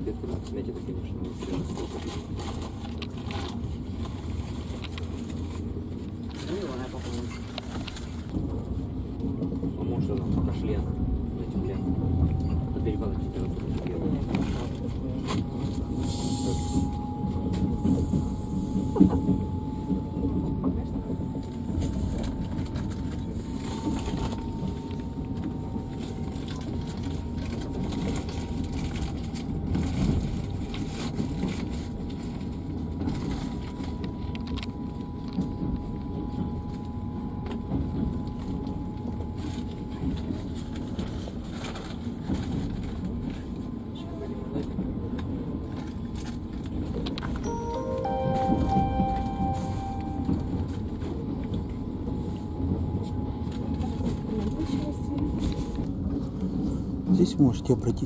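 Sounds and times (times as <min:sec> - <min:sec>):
train wheels rumbling on track: 0:00.0 - 0:47.4
thin whine rising in pitch: 0:47.5 - 0:51.0.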